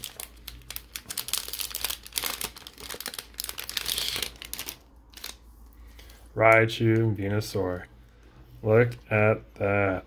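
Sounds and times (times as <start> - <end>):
foil wrappers crinkling: 0.0 - 6.2.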